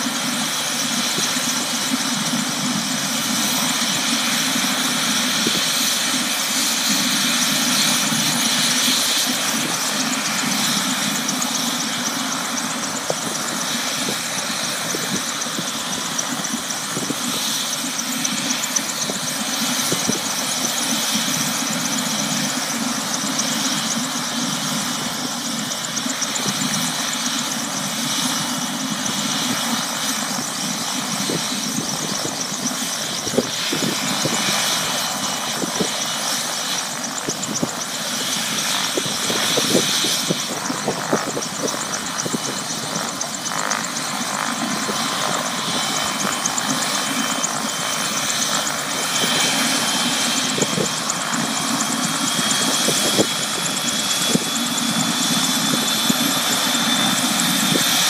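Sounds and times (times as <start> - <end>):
helicopter engine whine: 0.0 - 58.0
helicopter rotor noise: 0.0 - 58.0.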